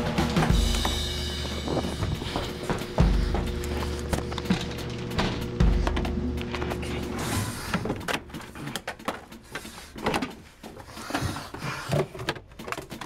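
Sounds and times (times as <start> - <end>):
cabinet doors and drawers banging: 0.0 - 13.0.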